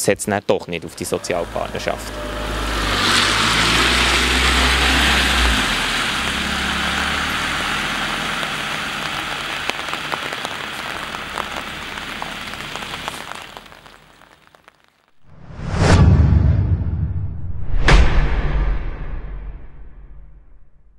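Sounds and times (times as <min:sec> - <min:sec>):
rain pattering: 0:00.2 - 0:15.2
tyres hissing on wet road: 0:00.8 - 0:14.8
car engine pulling away: 0:00.9 - 0:14.3.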